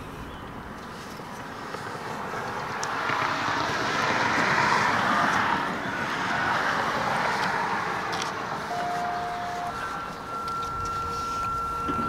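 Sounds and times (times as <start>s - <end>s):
rotating warning siren: 6.2s - 12.0s.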